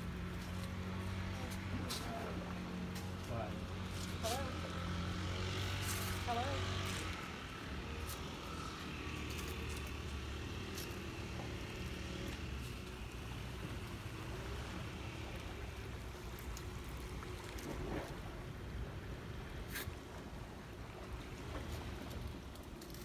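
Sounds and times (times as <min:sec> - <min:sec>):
faint engine hum: 0:00.0 - 0:23.0
low rumble outdoors: 0:00.0 - 0:23.0.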